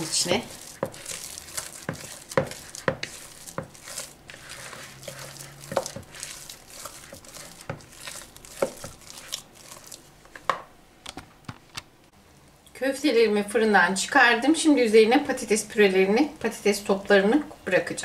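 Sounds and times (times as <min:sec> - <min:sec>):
spatula scraping mashed potato: 0:00.0 - 0:10.2
spatula knocking bowl: 0:00.0 - 0:10.6.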